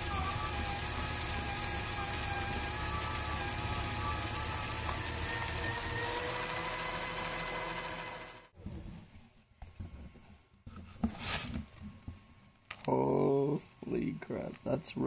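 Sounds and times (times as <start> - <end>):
shredder motor whine: 0.0 - 8.6.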